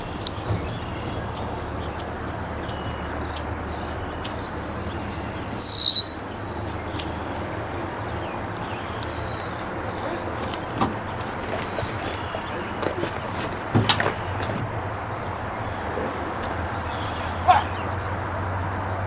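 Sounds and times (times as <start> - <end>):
outdoor background noise: 0.0 - 19.0
high falling whistle: 5.6 - 6.2.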